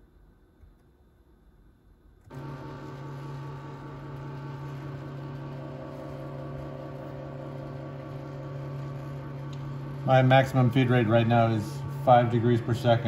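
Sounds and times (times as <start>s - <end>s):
motor hum with buzzy whine: 0.0s - 13.0s.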